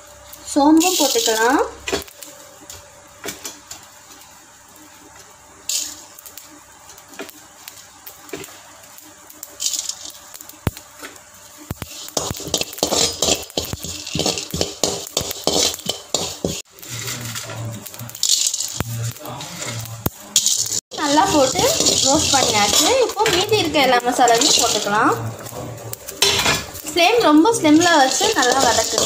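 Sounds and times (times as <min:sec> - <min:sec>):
metal spoon scraping metal pan: 0:11.8 - 0:17.6, 0:18.2 - 0:25.2, 0:26.2 - 0:29.0.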